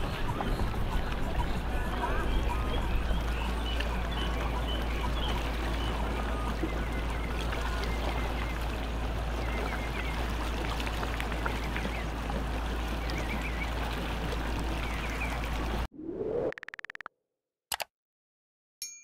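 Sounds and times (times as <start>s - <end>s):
water noise: 0.0s - 17.1s
rising swoosh: 15.9s - 16.8s.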